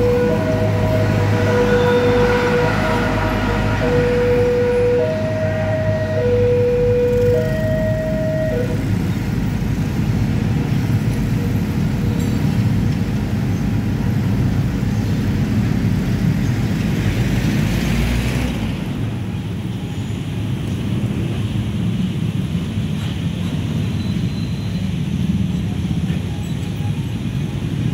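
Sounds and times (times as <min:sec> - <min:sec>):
two-tone electronic warning alarm: 0:00.0 - 0:09.0
motorcycle engines droning: 0:00.0 - 0:19.7
traffic: 0:00.0 - 0:27.9.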